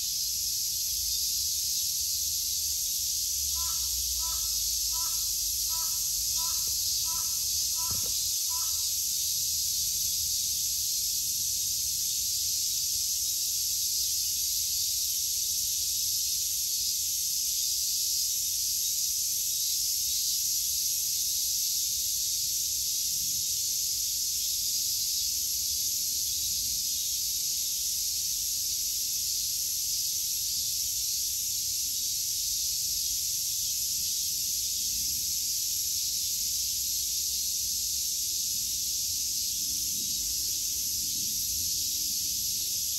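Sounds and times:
insects shrilling: 3.0s - 10.7s.

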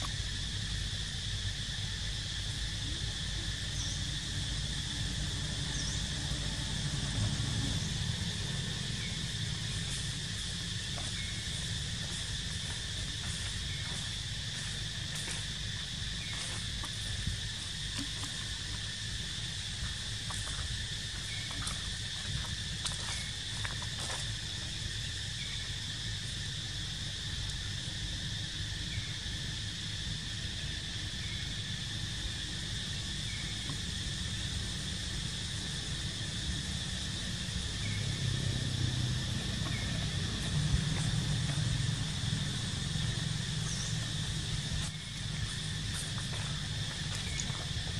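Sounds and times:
insects droning: 0.0s - 47.9s
faint chirps and clicks: 47.2s - 47.6s.

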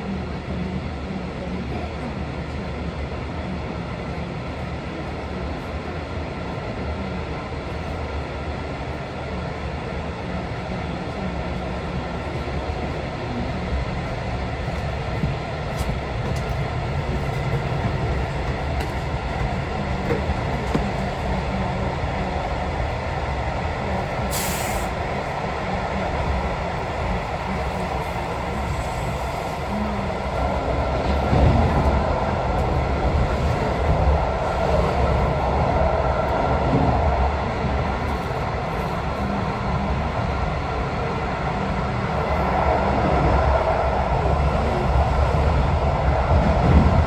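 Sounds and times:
train wheels rumbling on track: 0.0s - 47.0s
brief hiss: 24.3s - 24.9s.

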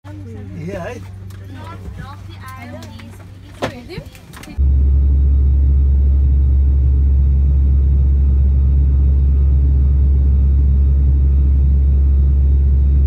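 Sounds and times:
airliner cabin engine drone: 0.1s - 13.0s.

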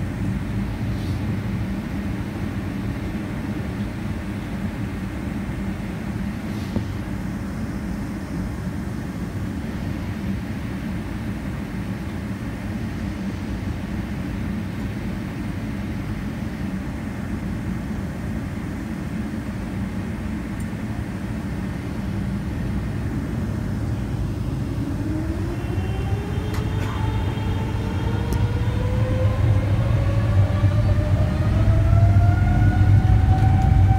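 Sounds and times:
jet engines rumbling: 0.0s - 33.9s
engines whining: 21.8s - 33.9s.

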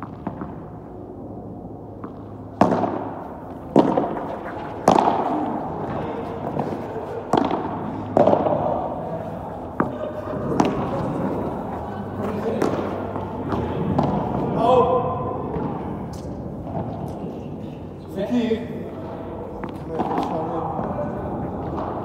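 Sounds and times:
paddle striking ball: 2.0s - 11.6s.

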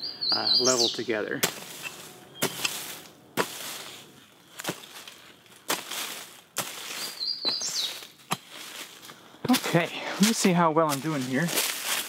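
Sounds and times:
bird chirping: 0.0s - 3.2s, 6.8s - 8.1s
scrape of loosened soil: 1.4s - 7.2s.

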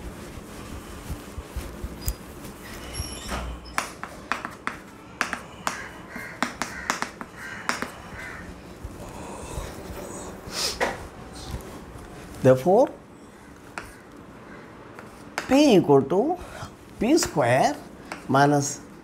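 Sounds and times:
chalk tapping and scratching: 0.0s - 8.5s, 13.6s - 14.2s, 15.0s - 15.8s, 17.0s - 18.5s
duster rubbing on blackboard: 0.0s - 9.0s.

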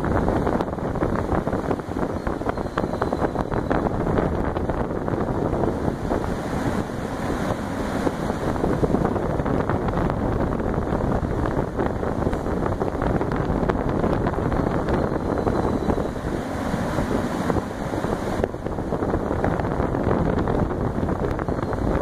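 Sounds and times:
fan wind buffeting: 0.0s - 22.0s.

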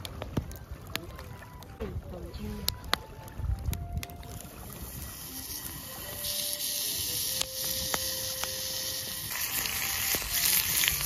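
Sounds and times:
meat sizzling in a skillet: 4.7s - 11.0s.

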